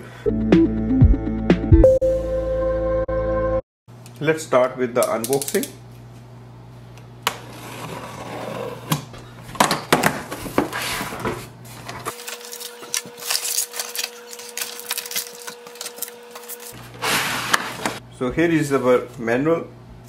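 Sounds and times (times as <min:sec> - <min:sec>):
cardboard scraping and rustling: 0:07.4 - 0:09.0, 0:10.1 - 0:18.0
cardboard flaps being folded: 0:10.2 - 0:18.0.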